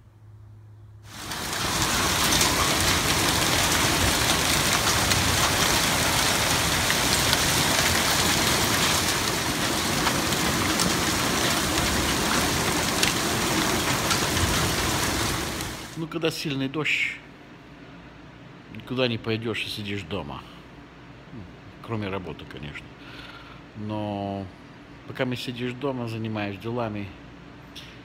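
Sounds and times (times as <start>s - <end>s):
heavy rain pouring: 1.1s - 16.0s
raindrops ticking on hard surfaces: 1.1s - 16.0s.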